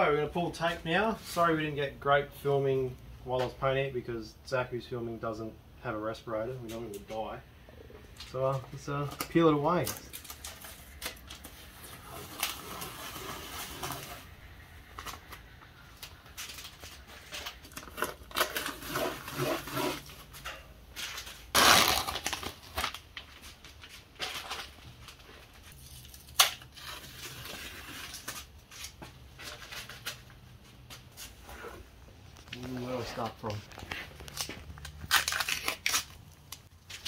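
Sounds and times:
masking tape tearing off: 0:09.1 - 0:14.3, 0:14.9 - 0:20.4, 0:21.0 - 0:23.1, 0:25.7 - 0:29.0, 0:34.1 - 0:37.0.

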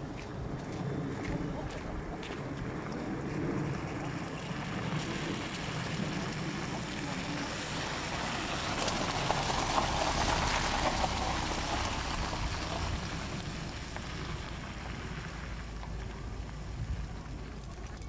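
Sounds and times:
car engine and road drone: 0:00.0 - 0:18.0.

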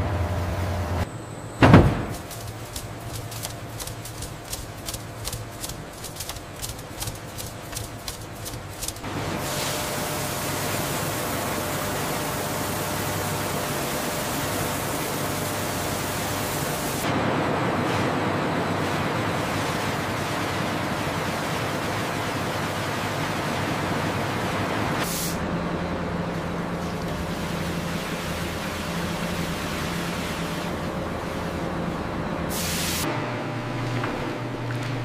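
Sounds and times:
heavy machinery thump: 0:01.6 - 0:02.4
water sprays rushing: 0:02.1 - 0:11.4.

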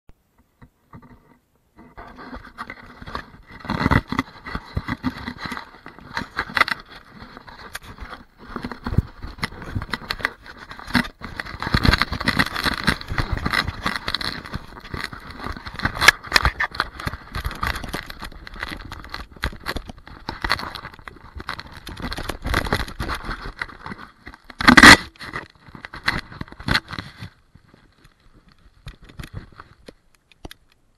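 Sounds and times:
fabric rubbing on microphone: 0:01.1 - 0:24.0.

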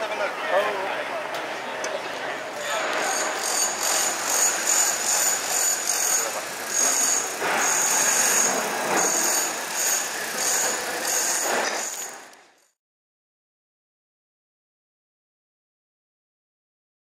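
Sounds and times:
crowd murmur: 0:00.0 - 0:03.5
street noise: 0:00.0 - 0:12.7
high-pitched whine: 0:02.4 - 0:12.7.

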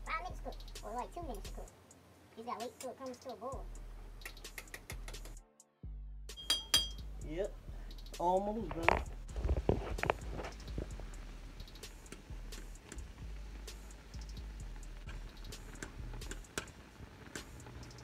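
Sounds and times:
fork clicking against pot: 0:04.2 - 0:05.4
faint low hum: 0:05.0 - 0:18.0.

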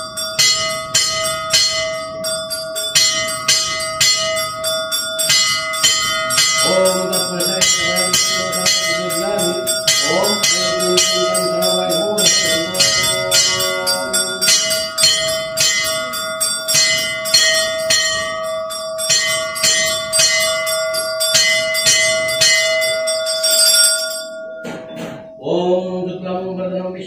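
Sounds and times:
temple bells ringing rapidly: 0:00.0 - 0:25.8
steady humming tone: 0:00.0 - 0:26.2.

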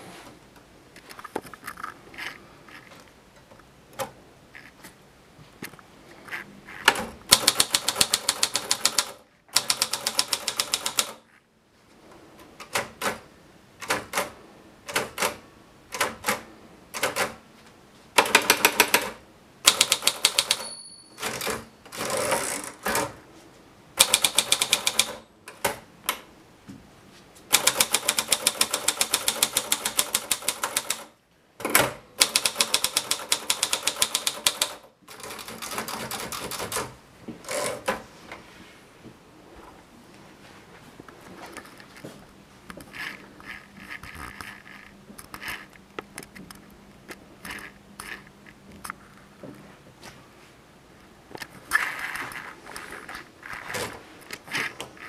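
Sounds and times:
typewriter carriage return: 0:06.8 - 0:11.2, 0:13.8 - 0:17.4, 0:18.2 - 0:23.2, 0:24.0 - 0:25.8, 0:27.5 - 0:38.0
typewriter keys striking: 0:06.9 - 0:11.2, 0:13.8 - 0:16.4, 0:17.0 - 0:17.4, 0:18.2 - 0:23.1, 0:24.0 - 0:25.8, 0:27.5 - 0:31.1, 0:31.7 - 0:38.0
typewriter bell ringing: 0:19.7 - 0:21.6.

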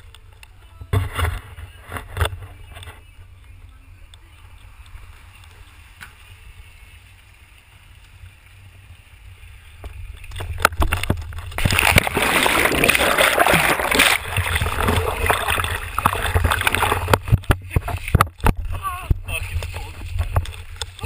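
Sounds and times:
water splashing and churning: 0:08.7 - 0:21.0
person splashing into pool: 0:11.6 - 0:17.4.

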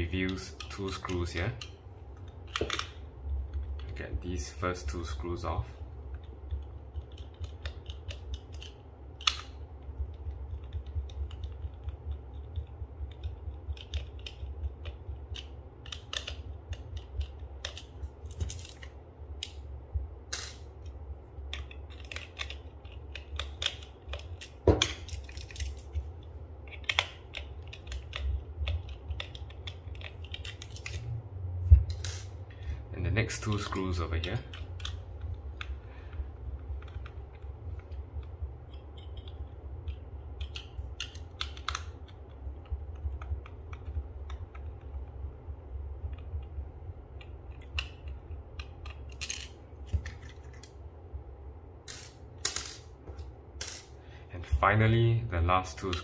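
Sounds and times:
low steady hum: 0:00.0 - 0:56.0
screwdriver and plastic parts clicking: 0:26.7 - 0:31.0, 0:47.2 - 0:50.7
sharp plastic clacks: 0:36.6 - 0:45.0.

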